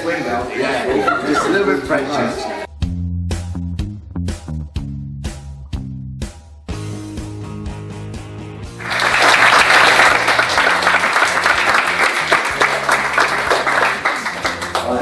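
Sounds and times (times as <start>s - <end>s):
background music with bass line: 0.4s - 15.0s
group applause: 8.8s - 15.0s.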